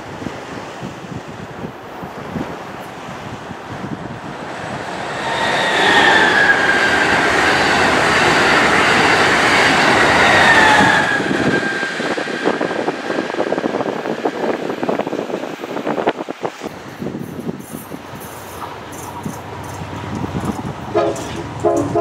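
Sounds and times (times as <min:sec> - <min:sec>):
high-speed train passing: 0:00.0 - 0:22.0
train wheel clicks: 0:17.2 - 0:22.0.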